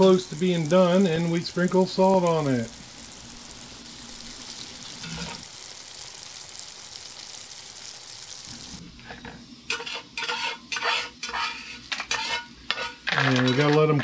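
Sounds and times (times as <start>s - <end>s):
seeds sizzling in a skillet: 0.0s - 13.8s
metal spatula scraping a pan: 4.9s - 5.5s, 9.7s - 14.0s.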